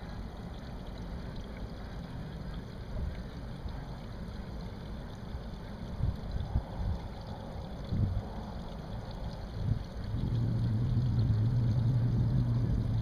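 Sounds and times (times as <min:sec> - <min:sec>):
outboard motor idling: 0:10.0 - 0:13.0.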